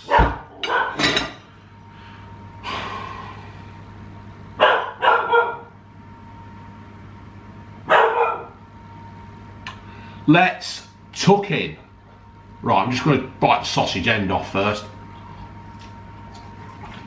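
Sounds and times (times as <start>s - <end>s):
dog barking: 0.0s - 1.0s, 4.6s - 5.7s, 7.9s - 8.6s.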